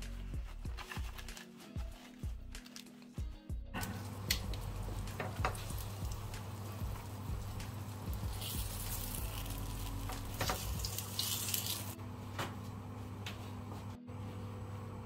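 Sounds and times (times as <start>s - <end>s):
fried food sizzling in oil: 4.0s - 12.0s.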